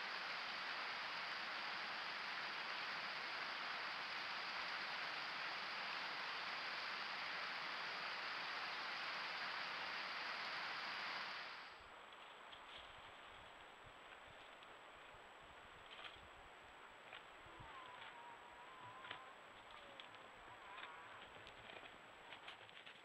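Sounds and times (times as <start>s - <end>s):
rush of running water: 0.0s - 11.8s.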